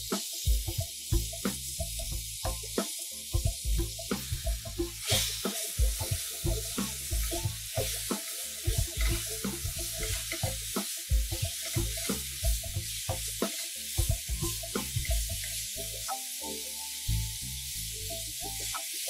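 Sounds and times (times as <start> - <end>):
garlic sizzling in oil: 0.0 - 19.0
spatula knocking on pan: 2.5 - 16.1.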